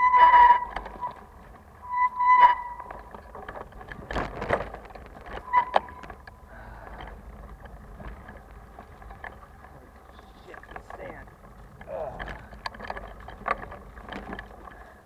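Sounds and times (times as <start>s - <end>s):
bicycle rattling over rough ground: 0.0s - 15.0s
brakes squealing: 0.0s - 15.0s.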